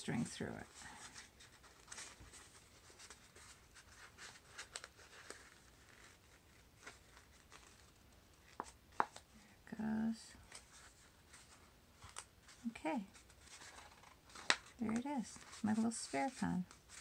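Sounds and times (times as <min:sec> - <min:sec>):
paper crinkling and rustling: 0:00.6 - 0:09.3, 0:10.4 - 0:17.0.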